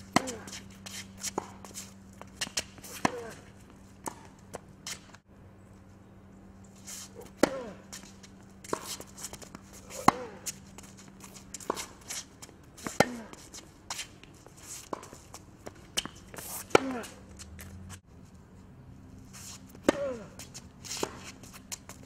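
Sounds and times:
tennis ball bouncing: 0.0s - 1.6s, 2.2s - 5.1s, 7.2s - 7.8s, 8.6s - 12.1s, 14.9s - 17.8s, 19.7s - 22.0s
racket hitting tennis ball: 0.0s - 5.2s, 7.2s - 18.0s, 19.5s - 22.0s.

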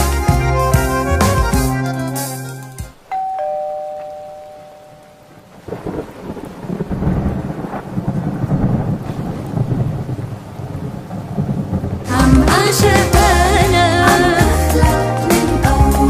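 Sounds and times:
song music: 0.0s - 5.3s, 12.1s - 16.0s
rain: 2.9s - 16.0s
two-tone doorbell chime: 3.1s - 5.4s
thunder rumble: 5.2s - 14.1s.

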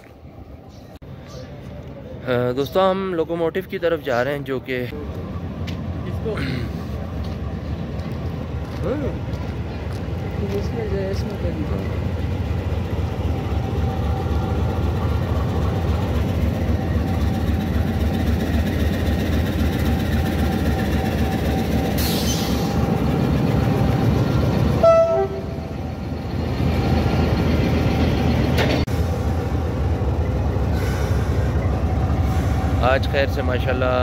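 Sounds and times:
diesel locomotive idling: 0.2s - 34.0s
short horn toot: 24.8s - 25.6s.

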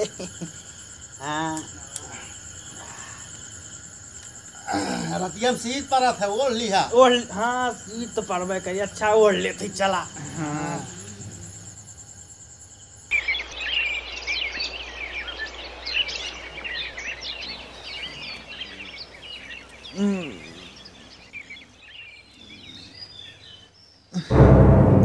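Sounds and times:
birds chirping: 0.0s - 24.3s
loud music: 24.3s - 25.0s.

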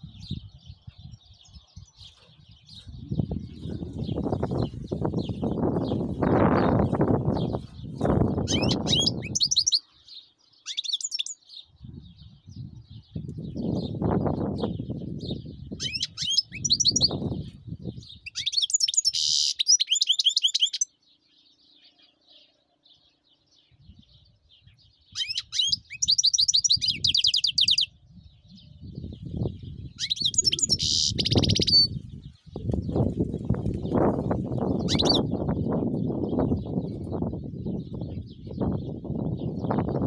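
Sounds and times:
goldfinch twittering trills: 8.3s - 11.4s, 15.3s - 17.2s, 18.1s - 20.9s, 25.1s - 27.9s, 29.9s - 32.0s, 33.8s - 35.5s.

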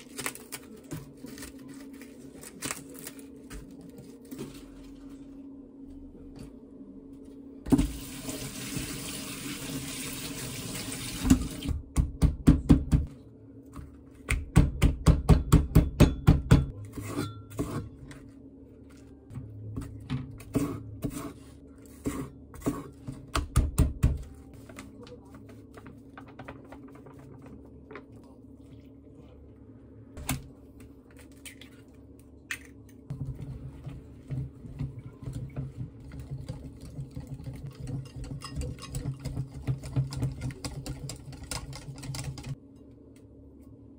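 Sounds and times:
tap water running: 7.7s - 11.8s
whisk beating batter in bowl: 33.2s - 42.6s.

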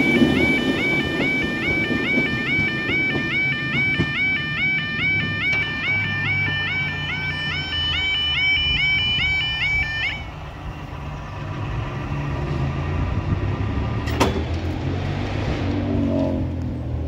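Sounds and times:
level crossing yodel alarm: 0.0s - 10.4s
barriers rising low rumble: 0.0s - 17.0s.

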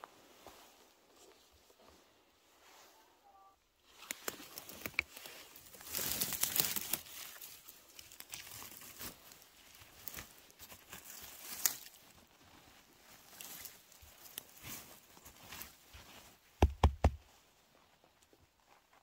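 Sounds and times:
twigs snapping: 4.0s - 12.0s
dry leaf litter rustling: 4.3s - 15.8s.

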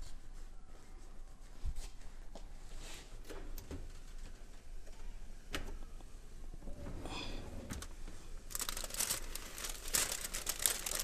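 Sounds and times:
aluminium foil crinkling: 8.4s - 11.0s.

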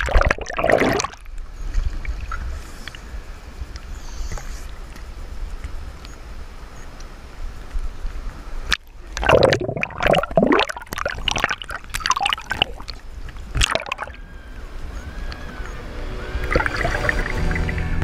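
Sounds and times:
seawater sloshing and splashing: 8.6s - 18.0s
music: 15.0s - 18.0s.

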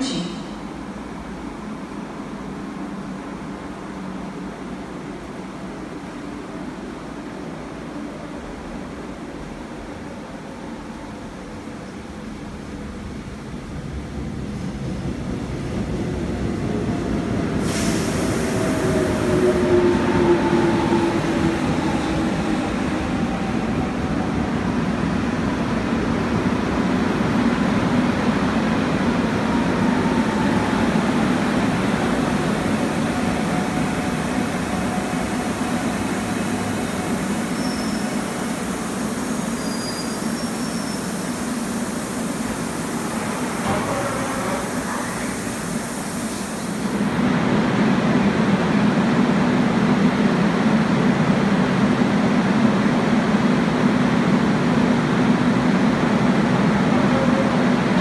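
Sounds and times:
train braking to a stop: 17.4s - 24.9s, 27.6s - 47.2s, 56.5s - 58.0s.

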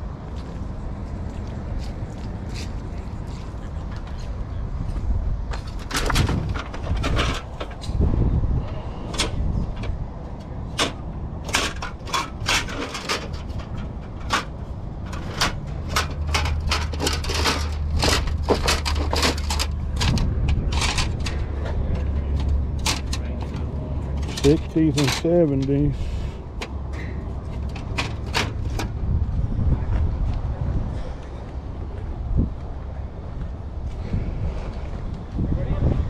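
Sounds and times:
metal plates clacking and rattling: 5.6s - 8.0s, 10.7s - 25.7s, 27.5s - 28.9s.

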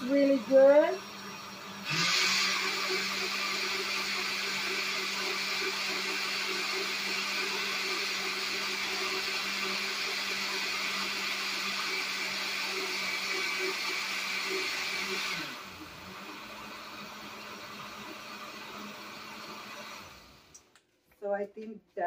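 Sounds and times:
blender motor humming: 0.0s - 20.7s.

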